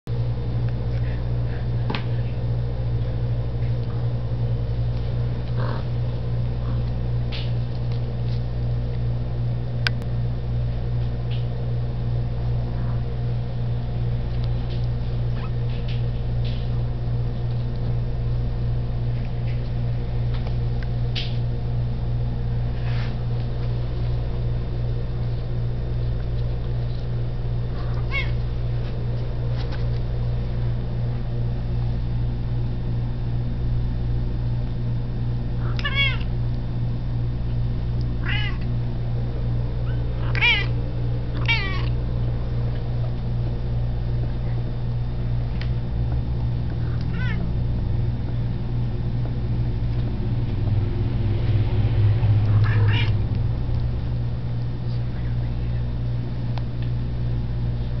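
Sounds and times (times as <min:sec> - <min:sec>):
low hum: 0:00.1 - 0:58.0
kittens mewing: 0:05.5 - 0:06.0, 0:27.7 - 0:28.4, 0:35.6 - 0:36.3, 0:38.2 - 0:38.7, 0:39.8 - 0:40.8, 0:41.4 - 0:42.0, 0:46.8 - 0:47.5, 0:52.5 - 0:53.2.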